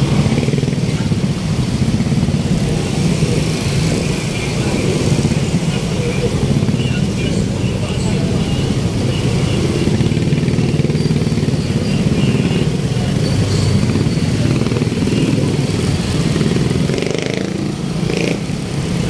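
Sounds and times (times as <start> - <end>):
motorcycle engine rumbling: 0.0 - 19.0
street traffic: 0.0 - 19.0.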